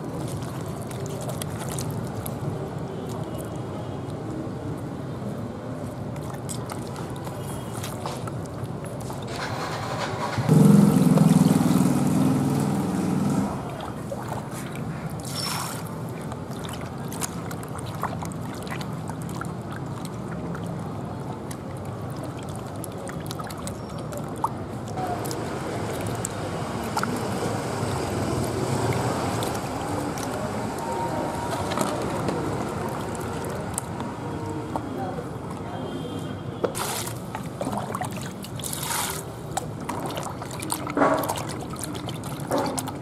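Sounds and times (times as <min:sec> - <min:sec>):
hands sloshing in water: 0:00.0 - 0:04.2, 0:05.8 - 0:10.3, 0:11.0 - 0:35.0, 0:36.7 - 0:43.0
small splashes and squelches: 0:00.0 - 0:43.0
water pouring into plastic basin: 0:10.9 - 0:34.1, 0:36.8 - 0:43.0.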